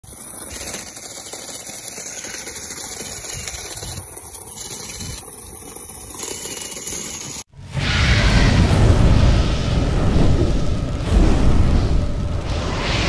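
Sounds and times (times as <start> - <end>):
small gear motor running: 0.0 - 7.5
wheels rolling over dirt and stones: 0.0 - 7.5.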